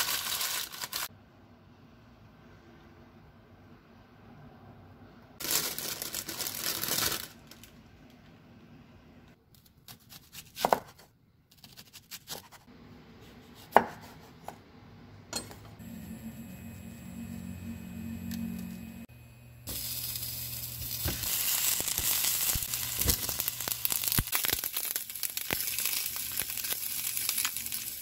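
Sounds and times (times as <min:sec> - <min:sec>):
knife cutting onion on wooden board: 0:09.5 - 0:14.6
stove hum: 0:12.7 - 0:28.0.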